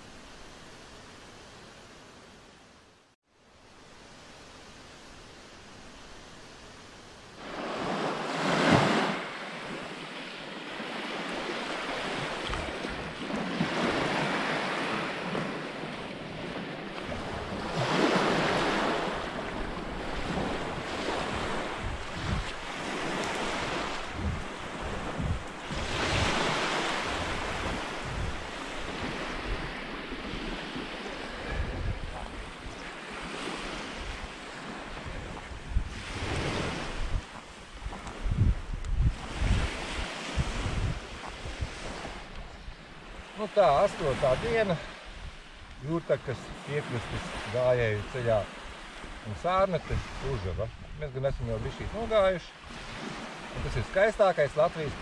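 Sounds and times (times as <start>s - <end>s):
small waves washing on sand: 3.6s - 55.0s
wind buffeting microphone: 10.7s - 43.4s.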